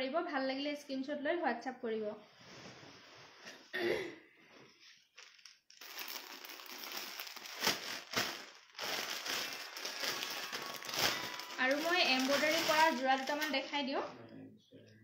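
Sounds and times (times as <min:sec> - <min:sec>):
cloth rustling and crinkling: 0:04.5 - 0:13.8.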